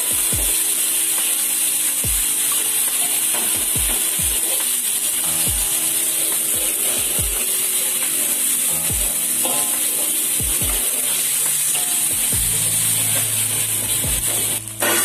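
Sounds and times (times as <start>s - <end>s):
background music with deep drums: 0.1s - 0.6s, 2.0s - 2.5s, 3.4s - 4.5s, 5.4s - 5.9s, 6.6s - 7.5s, 8.8s - 9.4s, 10.4s - 10.9s, 11.5s - 15.0s.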